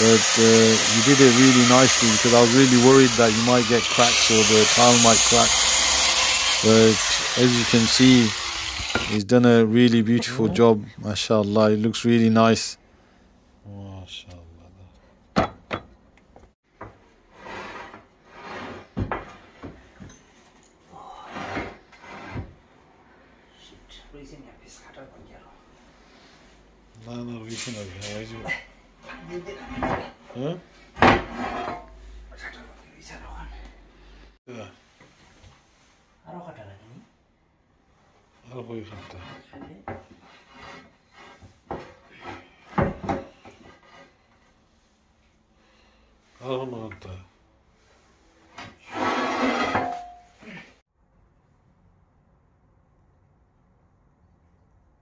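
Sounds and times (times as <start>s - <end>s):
drawers sliding and scraping: 48.6s - 50.2s.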